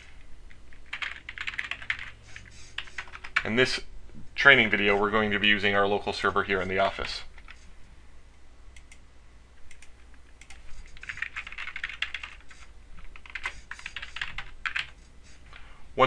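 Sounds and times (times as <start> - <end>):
typing on computer keyboard: 0.8 - 3.5, 9.7 - 15.0.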